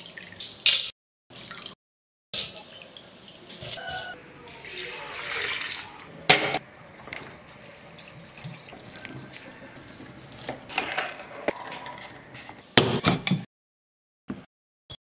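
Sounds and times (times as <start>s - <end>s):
water splashing in a steel pot: 4.5s - 11.0s
water pouring from a cup: 4.6s - 6.1s, 7.0s - 10.9s.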